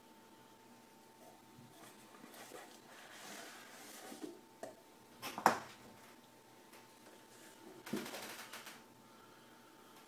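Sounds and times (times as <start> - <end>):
cardboard rustling and scraping: 1.6 - 4.4.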